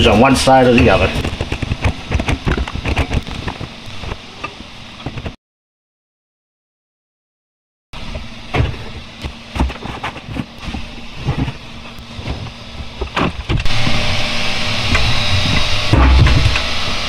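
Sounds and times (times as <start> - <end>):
loud steady hiss: 13.6 - 17.0.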